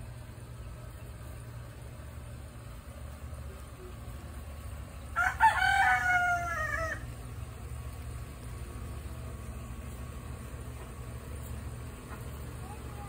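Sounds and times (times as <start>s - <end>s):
rooster crowing: 5.1s - 7.2s.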